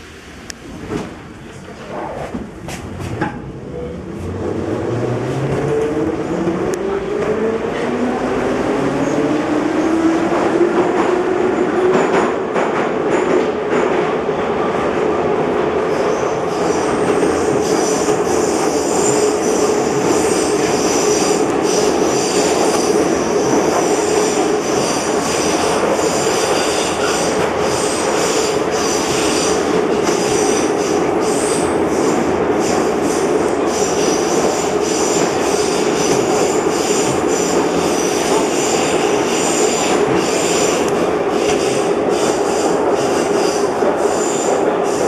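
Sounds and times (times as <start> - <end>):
metro train hum in tunnel: 0.0 - 45.0
high wheel squeal: 16.0 - 32.8.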